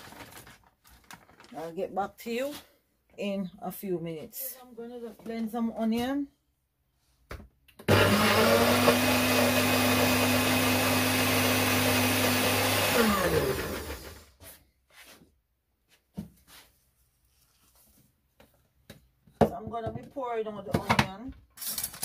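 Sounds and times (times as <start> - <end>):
blender motor whining: 7.8 - 14.3.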